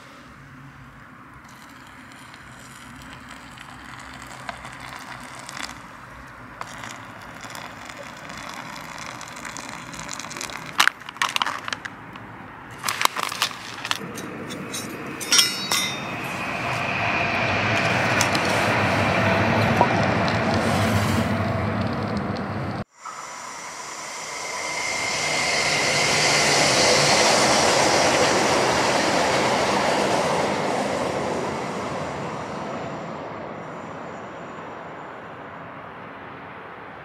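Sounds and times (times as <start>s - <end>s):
burner flame hissing: 1.5s - 10.8s, 12.7s - 29.7s.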